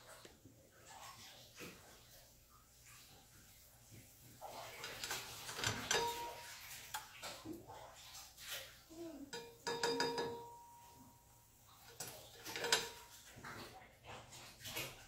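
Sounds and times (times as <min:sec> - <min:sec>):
pan ringing clatter: 0:04.8 - 0:06.8, 0:09.3 - 0:11.2, 0:11.9 - 0:13.2
spatula scraping frying pan: 0:11.7 - 0:13.3.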